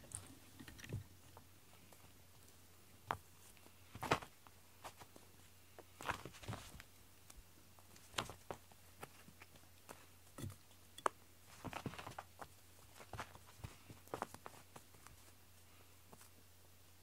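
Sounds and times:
rope toy rustling: 0:01.2 - 0:10.1, 0:11.4 - 0:16.4
paws tapping on carpet: 0:11.5 - 0:15.4.

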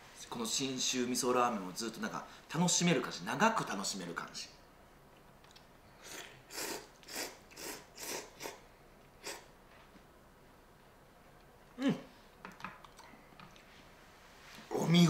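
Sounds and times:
man slurping noodles: 0:06.0 - 0:08.6, 0:09.2 - 0:09.5
short falling vocal sound: 0:11.8 - 0:12.1.

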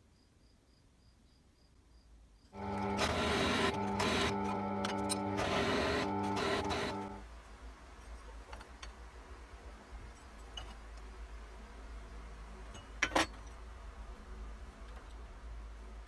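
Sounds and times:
steady low hum: 0:02.6 - 0:07.3.

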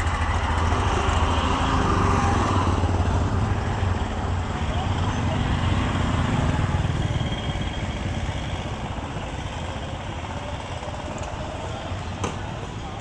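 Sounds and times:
busy street noise: 0:00.0 - 0:13.0
small motorbike engine running: 0:04.5 - 0:13.0.

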